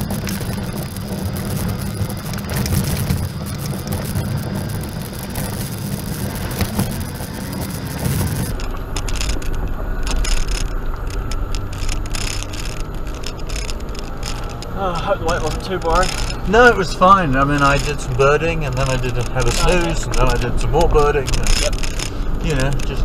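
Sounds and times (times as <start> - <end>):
clicks and knocks from rough ground: 0.0 - 23.0
engine and tyre rumble: 0.0 - 23.0
sharp rattles: 0.0 - 23.0.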